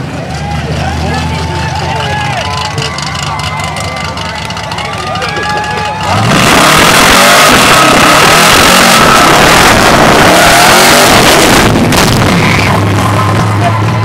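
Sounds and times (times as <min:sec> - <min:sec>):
car engine revving high: 0:06.0 - 0:14.0.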